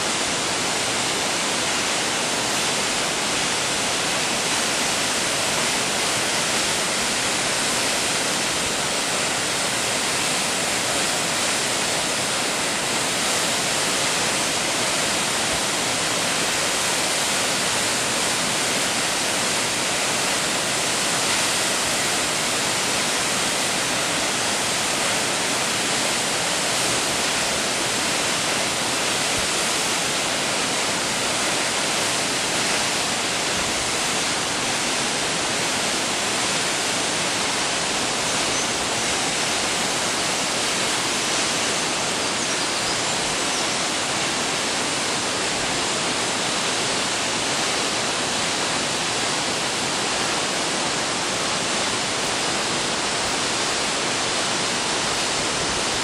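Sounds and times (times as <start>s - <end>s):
waterfall pouring onto rocks: 0.0s - 42.3s.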